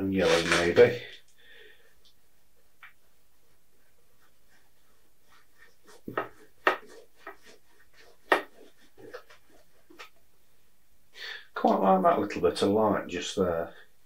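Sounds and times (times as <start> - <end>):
brush strokes on canvas: 2.9 - 10.2.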